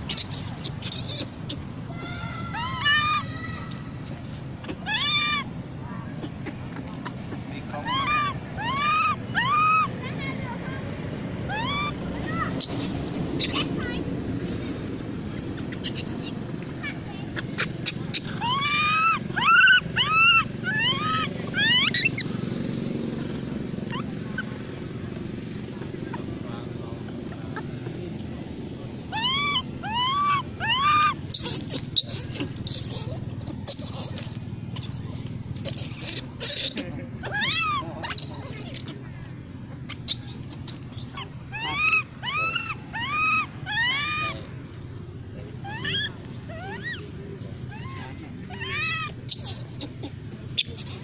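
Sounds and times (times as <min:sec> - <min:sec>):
baby monkey squealing: 0:00.0 - 0:01.8, 0:02.4 - 0:03.5, 0:04.5 - 0:05.6, 0:06.2 - 0:10.0, 0:11.5 - 0:14.0, 0:15.3 - 0:23.2, 0:23.8 - 0:24.7, 0:29.0 - 0:44.4, 0:45.6 - 0:51.0.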